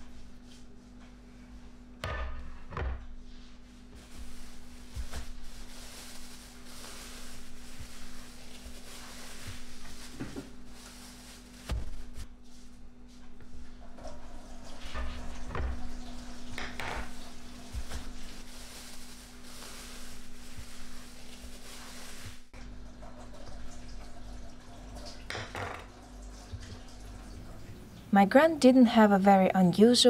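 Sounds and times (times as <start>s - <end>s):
plastic bag crinkling: 4.0s - 12.4s, 17.1s - 22.5s.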